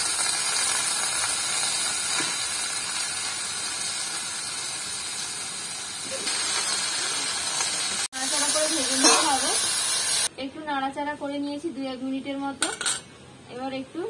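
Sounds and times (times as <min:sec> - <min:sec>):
vegetables sizzling in hot oil: 0:00.0 - 0:10.3.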